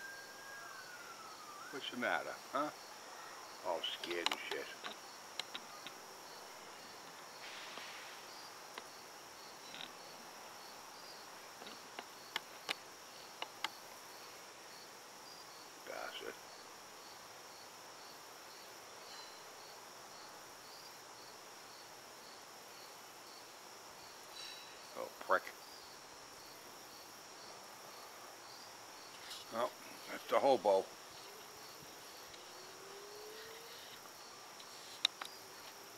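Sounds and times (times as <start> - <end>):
insect chirping: 0.0 - 35.9
insects trilling: 0.0 - 35.9
faint clicks: 4.0 - 6.0.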